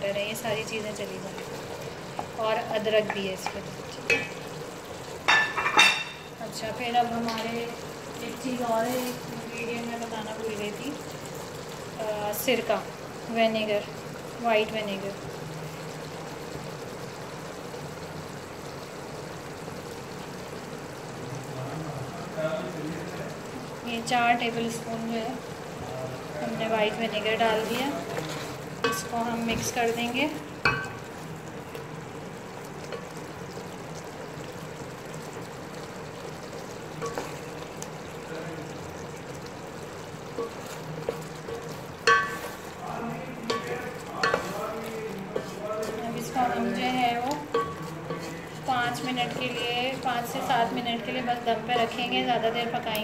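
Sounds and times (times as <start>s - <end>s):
food sizzling: 0.0s - 53.0s
pot simmering hiss: 0.0s - 53.0s
spatula stirring in metal pot: 27.1s - 31.3s, 36.3s - 38.1s, 39.2s - 52.8s.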